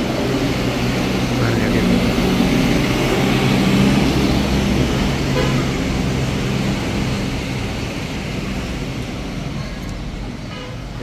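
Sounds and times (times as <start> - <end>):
road traffic noise: 0.0 - 11.0
vehicle engine drone: 0.0 - 11.0.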